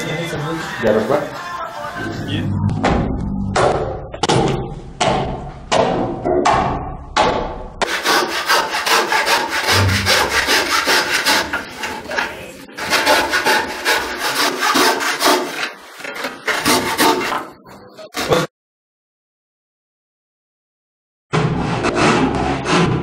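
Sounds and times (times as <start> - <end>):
hand saw cutting wood: 7.8 - 17.5, 18.2 - 18.5, 21.6 - 23.0.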